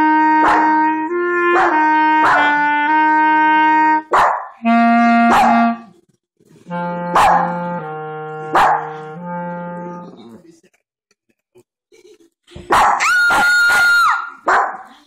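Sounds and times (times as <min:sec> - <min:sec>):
clarinet playing slow notes: 0:00.0 - 0:05.9, 0:06.6 - 0:10.2.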